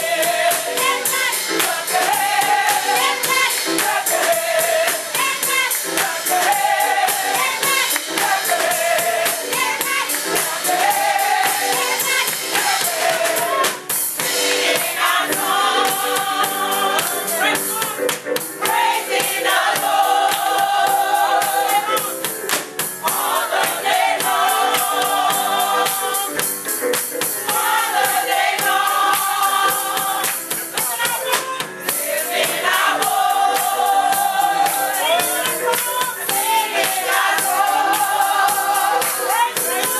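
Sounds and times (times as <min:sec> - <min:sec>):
gospel choir singing: 0:00.0 - 0:39.9
rhythmic hand clapping: 0:00.0 - 0:39.9.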